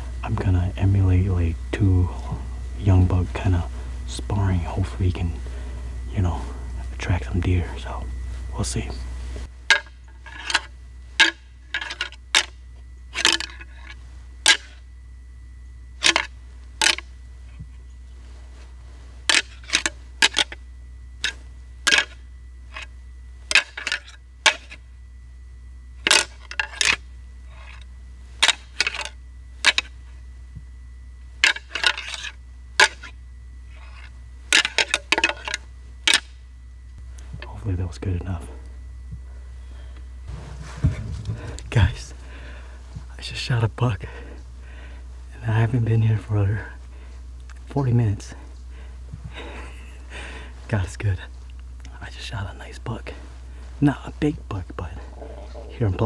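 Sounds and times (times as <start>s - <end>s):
antlers rattling together: 26.0s - 27.8s, 55.0s - 55.8s.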